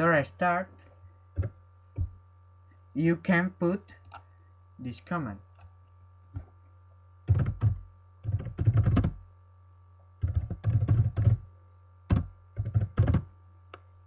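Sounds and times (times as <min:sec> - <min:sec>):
keyboard typing: 0:07.3 - 0:09.2, 0:10.2 - 0:11.4, 0:12.1 - 0:13.3.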